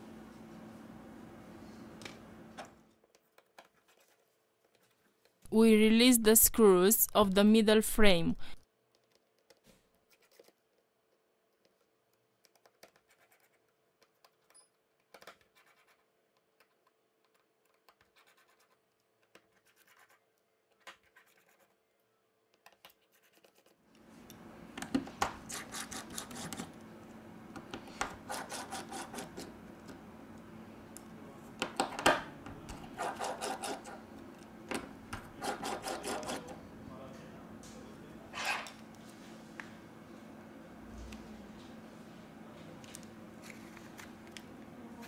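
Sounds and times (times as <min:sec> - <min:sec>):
steady background hum: 0:00.0 - 0:09.1, 0:23.8 - 0:45.0.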